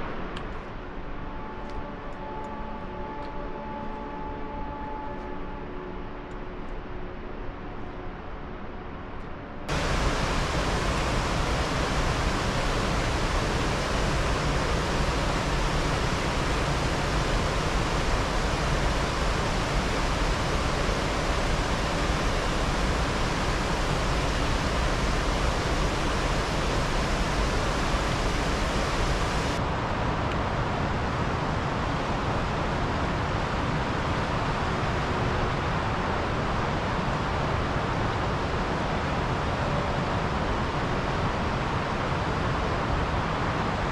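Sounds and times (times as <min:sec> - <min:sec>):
mountain river rushing: 0:09.7 - 0:29.6.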